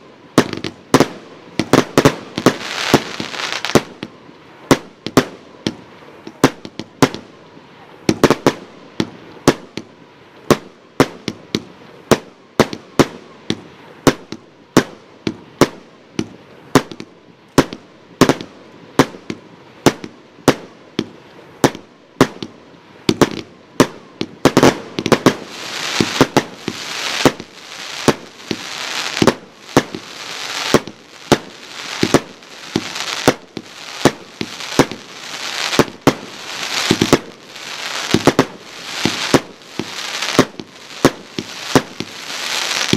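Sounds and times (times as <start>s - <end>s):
dense high hiss: 0.0s - 42.9s
fireworks cake bangs: 23.1s - 42.9s.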